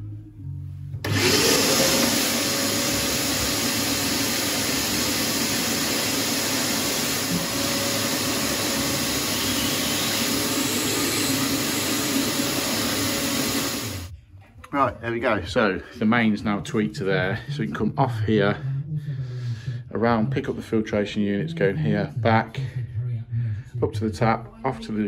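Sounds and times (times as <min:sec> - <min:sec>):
vacuum cleaner motor whine: 0:01.0 - 0:14.1.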